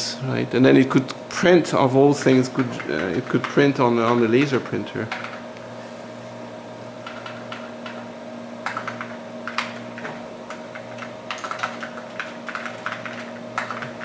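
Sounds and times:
steady hum: 0.0s - 14.0s
keyboard typing: 2.2s - 5.4s, 7.0s - 8.0s, 8.6s - 9.8s, 10.5s - 14.0s.

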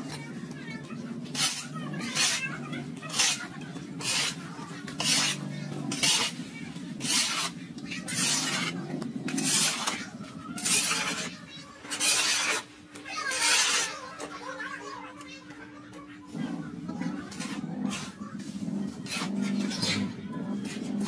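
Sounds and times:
raspy scraping strokes: 1.3s - 14.1s.

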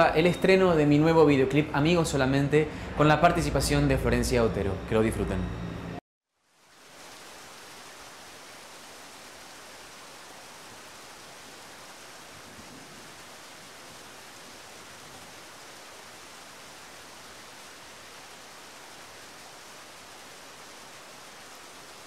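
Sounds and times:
steady rain falling: 6.4s - 22.0s.

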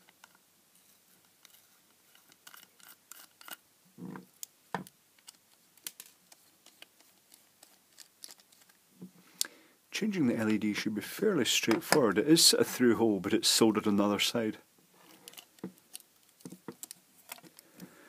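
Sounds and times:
screwdriver clicks and scrapes: 1.2s - 3.6s.

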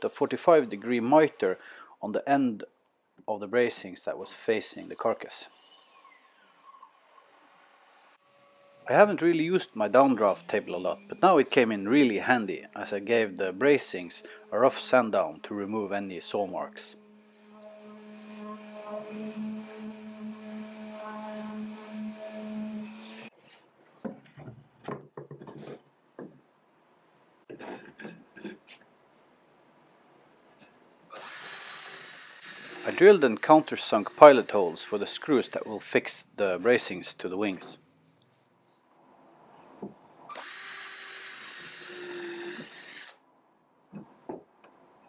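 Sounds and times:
wooden knocks: 24.0s - 26.4s
cordless drill drilling into wood: 31.1s - 35.8s, 40.3s - 43.2s.

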